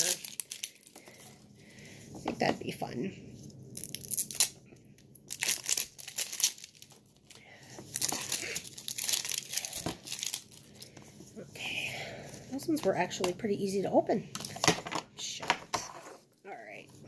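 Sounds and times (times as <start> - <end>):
packaging crinkling and tearing: 0.0 - 1.4, 3.7 - 11.0.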